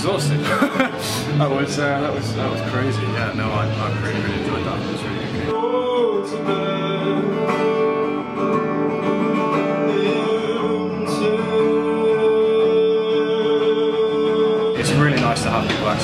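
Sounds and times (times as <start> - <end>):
guitar accompaniment: 0.0 - 16.0
person singing long held notes: 5.5 - 15.0.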